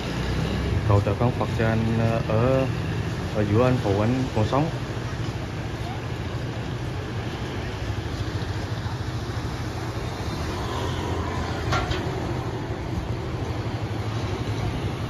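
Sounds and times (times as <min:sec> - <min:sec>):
heavy engine rumbling: 0:03.3 - 0:15.0.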